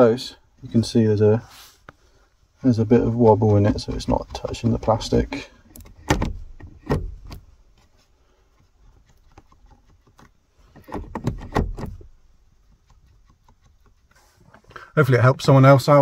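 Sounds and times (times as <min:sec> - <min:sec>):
gear lever clicking and knocking: 0:03.4 - 0:07.9, 0:08.9 - 0:14.1.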